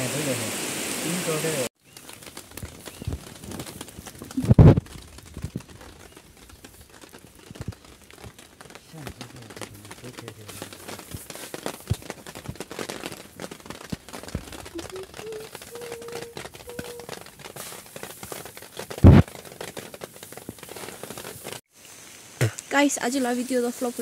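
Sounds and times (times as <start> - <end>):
rice grain being raked: 14.8 - 21.6.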